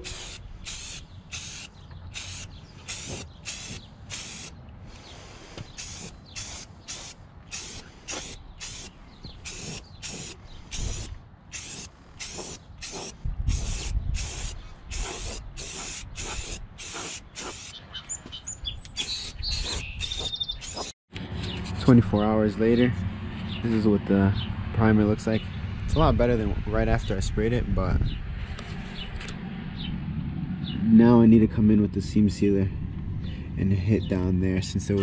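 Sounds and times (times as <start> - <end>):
aerosol can spraying bursts: 0.0 - 4.5, 5.7 - 17.8
low rumble: 24.5 - 34.9.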